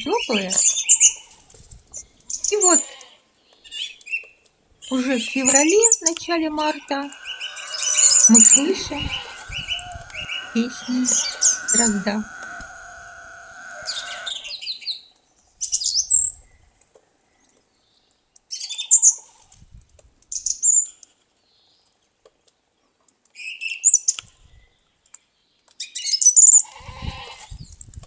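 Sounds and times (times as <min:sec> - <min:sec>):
thrush singing: 0:05.0 - 0:14.7.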